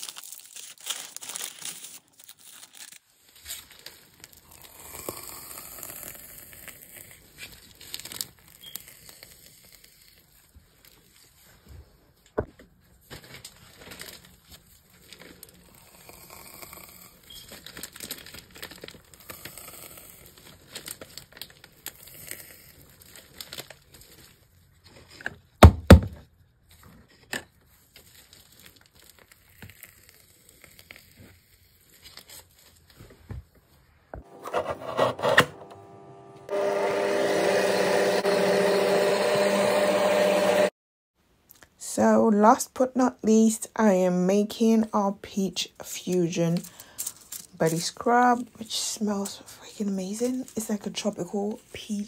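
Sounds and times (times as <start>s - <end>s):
electric mixer running: 34.2s - 40.8s.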